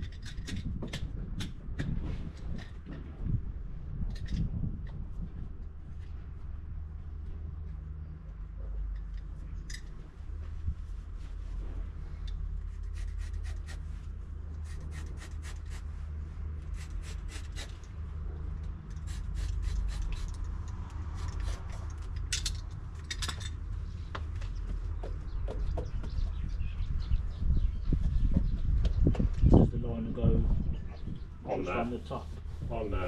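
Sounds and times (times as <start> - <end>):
steady low rumble: 0.0 - 33.0
scratchy scrapes and rustles: 18.9 - 22.3.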